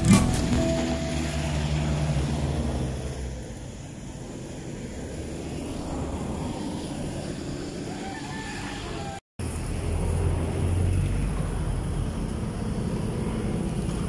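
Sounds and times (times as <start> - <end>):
vehicle engine rumble passing: 0.0 - 14.0.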